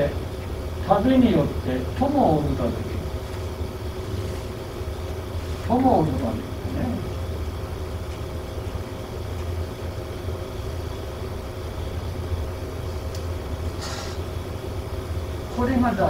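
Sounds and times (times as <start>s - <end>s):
low room hum: 0.0s - 16.0s
short hissing scratch: 13.7s - 14.3s.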